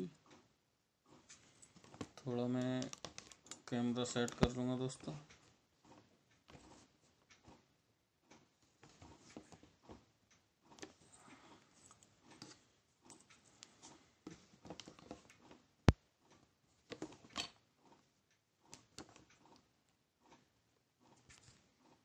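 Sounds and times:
hands rustling and tapping: 1.1 - 5.2.

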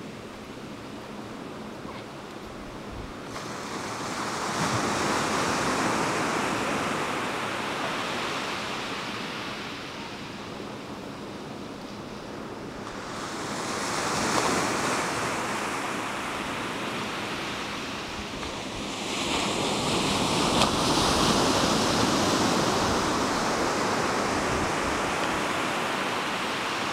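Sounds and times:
waves breaking on sandy beach: 0.0 - 26.9.

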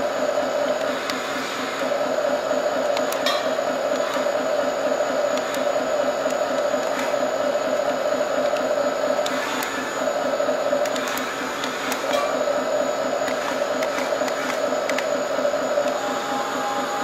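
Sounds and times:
small electric motors whining: 0.0 - 17.0.

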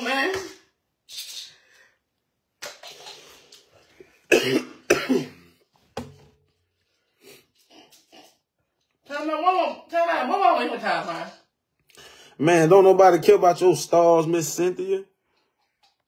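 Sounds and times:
man coughing: 4.3 - 5.6.

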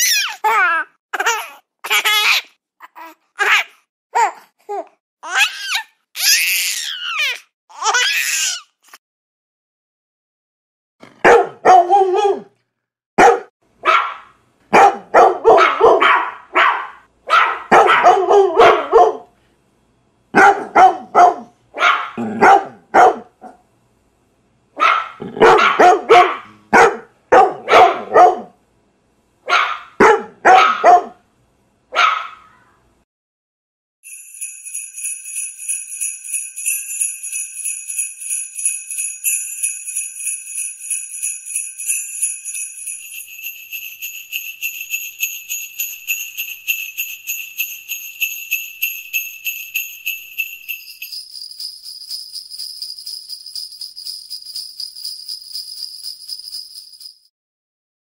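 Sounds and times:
dog barking: 11.1 - 12.6, 13.2 - 19.3, 20.3 - 23.6, 24.8 - 28.6, 29.4 - 31.2, 31.9 - 32.6
sleigh bells jingling: 34.0 - 57.3.

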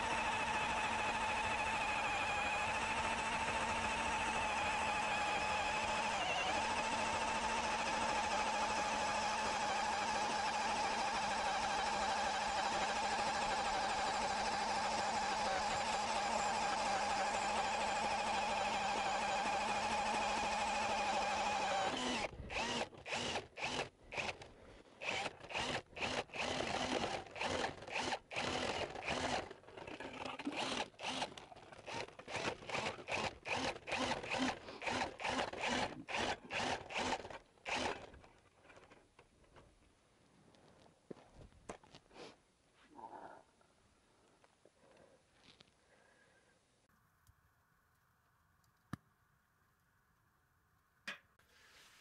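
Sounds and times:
cordless drill driving ice auger: 0.0 - 39.0.

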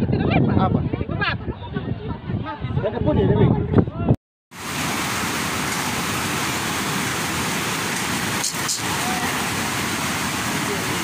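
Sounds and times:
floodwater rushing: 4.5 - 11.0.

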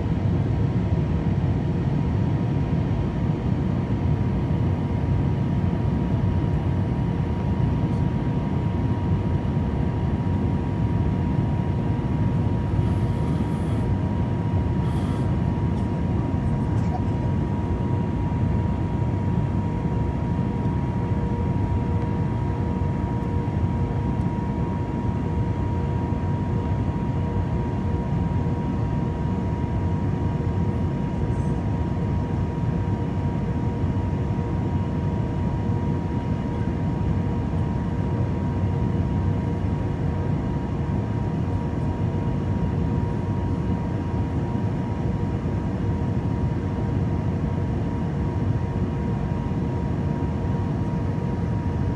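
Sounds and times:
faint steady hum: 0.0 - 51.9
airliner cabin rumble: 11.4 - 31.9.

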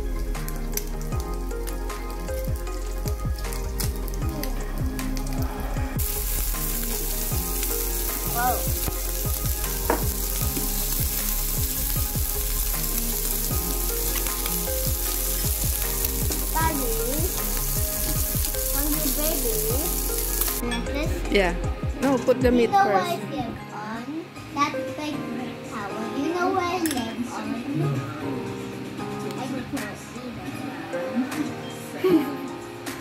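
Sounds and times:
pork sizzling on grill: 0.0 - 21.2.

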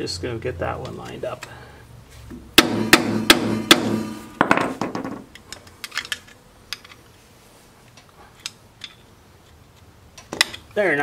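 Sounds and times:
tool tapping metal: 2.6 - 5.2.

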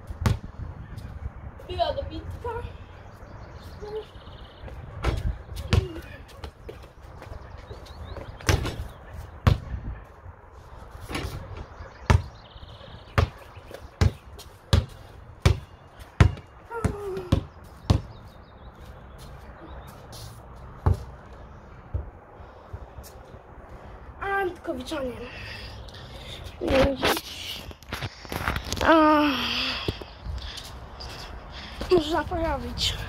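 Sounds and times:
basketball bouncing on ground: 0.1 - 0.6, 4.7 - 7.4, 8.1 - 9.9, 12.0 - 12.4, 13.1 - 18.2, 20.8 - 21.1.

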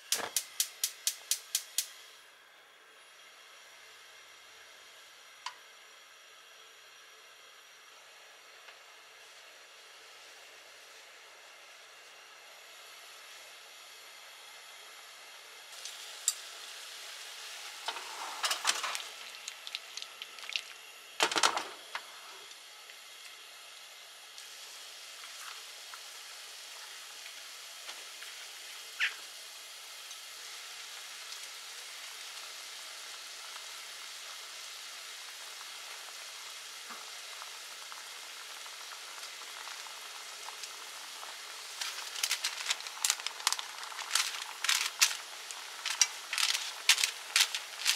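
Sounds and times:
sauce sizzling in frying pan: 12.6 - 47.9.

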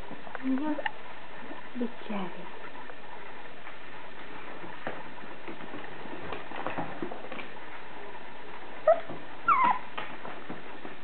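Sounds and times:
puppy whimpering: 8.8 - 10.0.

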